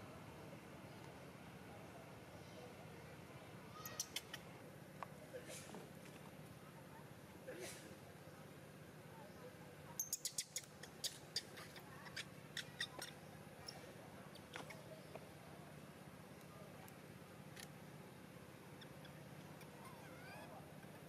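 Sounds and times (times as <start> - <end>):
baby monkey squeaking: 10.0 - 13.8.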